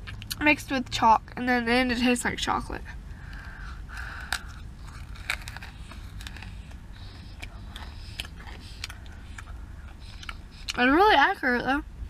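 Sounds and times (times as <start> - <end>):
crunching and chewing: 0.0 - 0.4, 3.0 - 11.1
low steady hum: 0.0 - 12.0.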